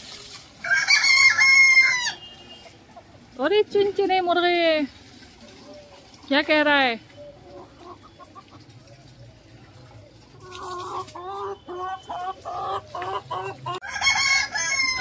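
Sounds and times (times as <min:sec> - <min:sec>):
chickens clucking and squawking: 0:00.6 - 0:04.1, 0:05.2 - 0:15.0.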